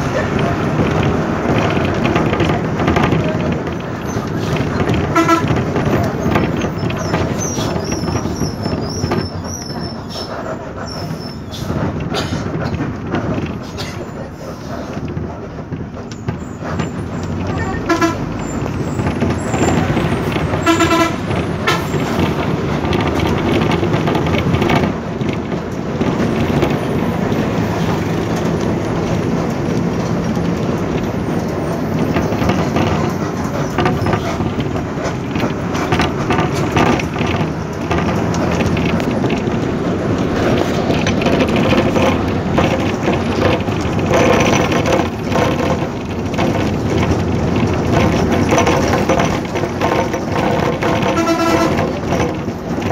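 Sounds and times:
road and engine noise: 0.0 - 52.9
car horn tooting: 5.0 - 5.7, 17.5 - 18.4, 20.5 - 22.0, 51.0 - 52.1.

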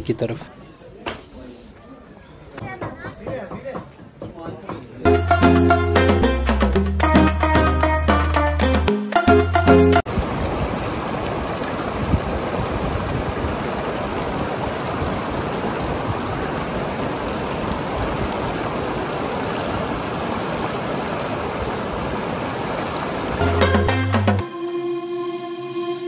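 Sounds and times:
river rushing over boulders: 10.1 - 23.4.

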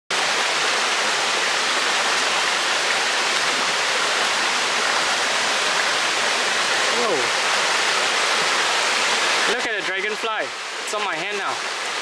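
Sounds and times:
stream rushing over stones: 0.1 - 12.0.

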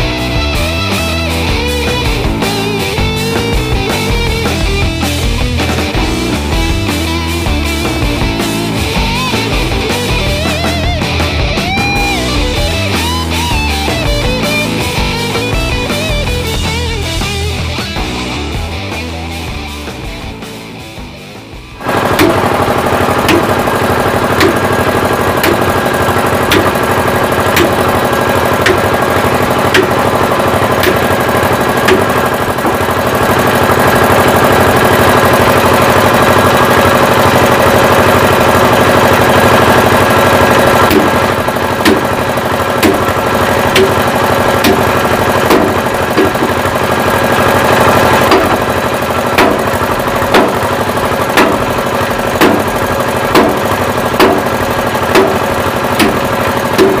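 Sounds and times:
truck engine running: 0.0 - 57.0
sledgehammer striking steel: 21.8 - 33.0, 40.8 - 47.4, 48.0 - 57.0.

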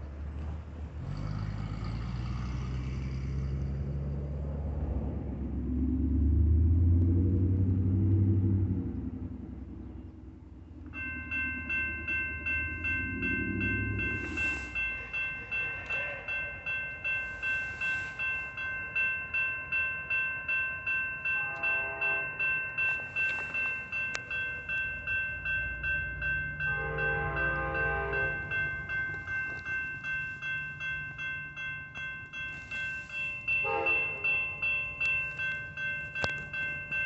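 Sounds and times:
crossing warning bell ringing: 9.8 - 37.0
train horn: 21.3 - 22.5, 26.6 - 28.6, 33.6 - 34.5.

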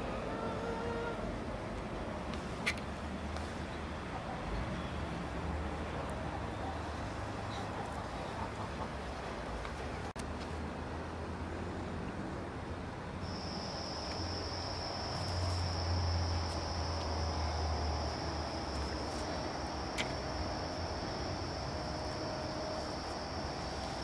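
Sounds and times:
insect trilling: 13.2 - 24.0.

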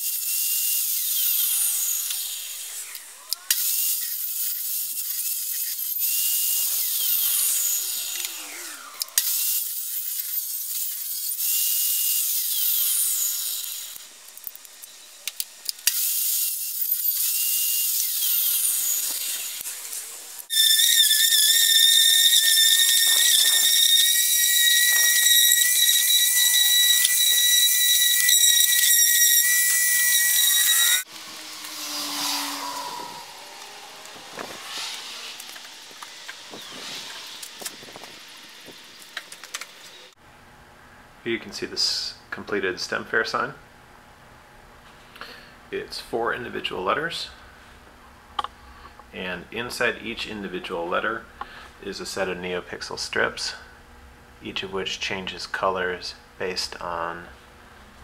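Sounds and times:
saw motor whine: 0.0 - 10.2, 11.3 - 40.2
table saw ripping wood: 0.0 - 14.8, 15.5 - 40.1.

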